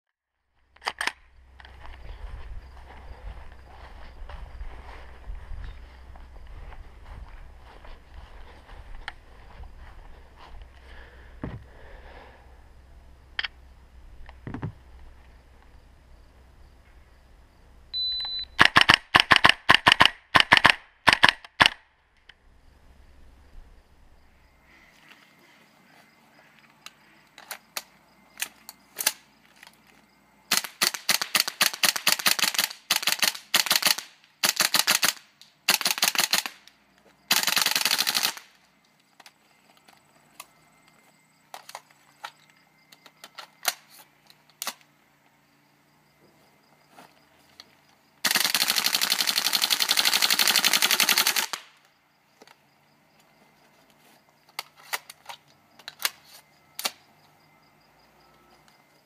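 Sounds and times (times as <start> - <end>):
airsoft rifle firing: 18.6 - 21.8, 30.5 - 36.6, 37.3 - 38.6, 48.2 - 51.8.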